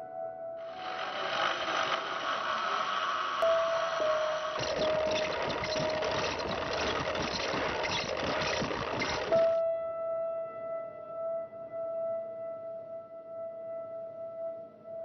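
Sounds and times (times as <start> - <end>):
winding wheel whirring: 0.7 - 9.6
wooden clatter of spinning wheel: 4.4 - 9.6.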